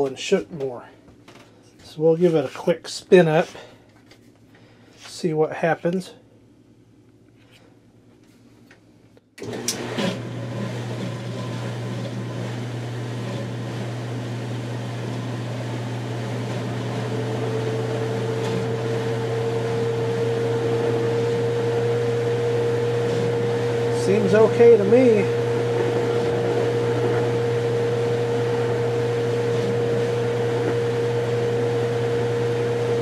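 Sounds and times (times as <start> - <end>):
washing machine motor humming: 9.4 - 33.0
washing machine whine: 9.4 - 33.0.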